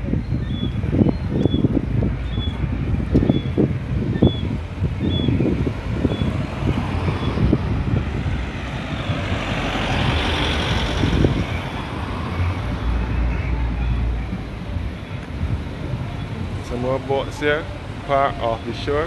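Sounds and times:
road traffic: 0.0s - 19.0s
car driving past: 5.9s - 13.6s.

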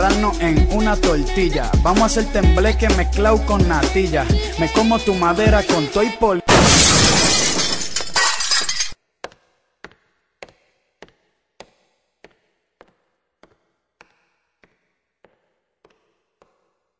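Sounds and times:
glass shattering: 6.5s - 9.0s.

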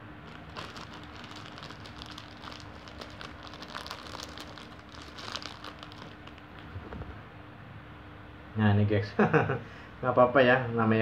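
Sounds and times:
plastic packaging crinkling: 0.2s - 7.1s.

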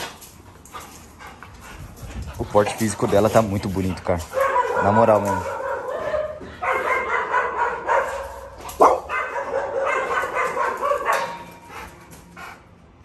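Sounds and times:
dog yelping: 4.3s - 11.4s.

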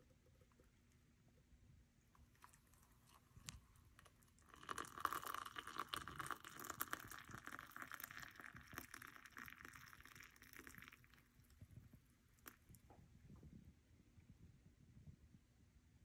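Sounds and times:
water pouring into a mug: 2.4s - 12.8s.

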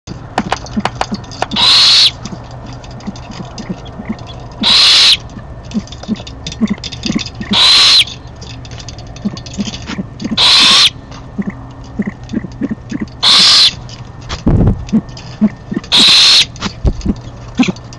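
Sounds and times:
faint clicks and ticks: 0.1s - 4.6s, 5.2s - 10.4s, 11.1s - 17.9s
owl rasping hiss-like call: 1.6s - 2.1s, 4.6s - 5.2s, 7.5s - 8.1s, 10.4s - 10.9s, 13.2s - 13.7s, 15.9s - 16.5s.

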